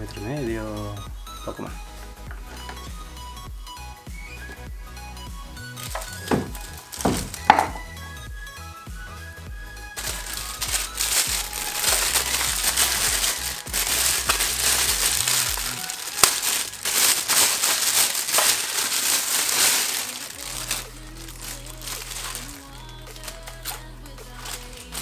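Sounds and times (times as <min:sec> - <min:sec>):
electronic music: 0:00.0 - 0:19.2
plastic bag crinkling: 0:05.7 - 0:07.9, 0:10.0 - 0:25.0.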